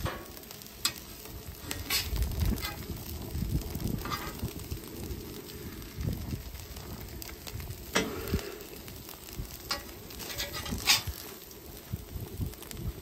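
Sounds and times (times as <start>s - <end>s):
faint sizzle: 0.0s - 13.0s
metal spatulas scraping griddle: 1.6s - 2.8s, 4.0s - 4.4s, 9.7s - 11.2s.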